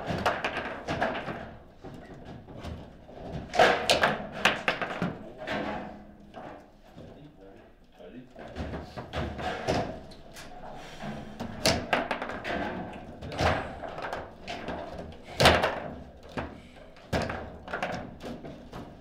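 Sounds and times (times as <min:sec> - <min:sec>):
table football knocks and clacks: 0:00.0 - 0:05.5, 0:08.4 - 0:10.2, 0:11.4 - 0:19.0.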